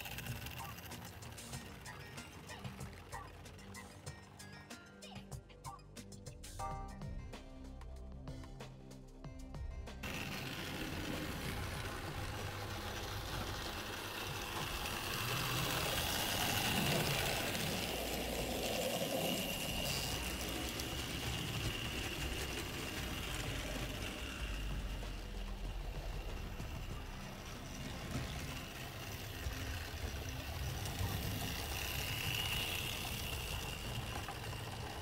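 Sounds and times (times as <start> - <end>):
wheels rattling on rail: 0.0 - 5.2, 10.0 - 35.0
electric motor whine: 10.0 - 35.0.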